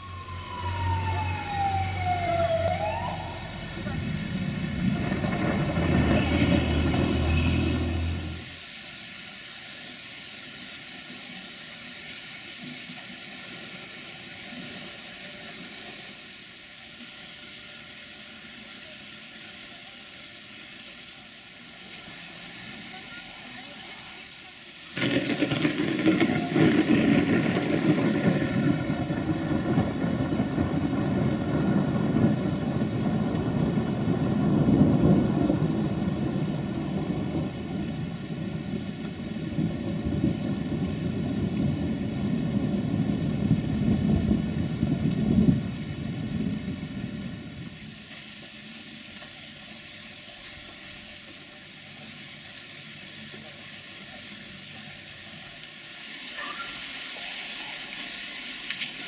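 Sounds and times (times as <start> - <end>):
thunder rumbling: 0.0 - 8.6, 25.0 - 48.0
light rain hissing: 0.0 - 59.0.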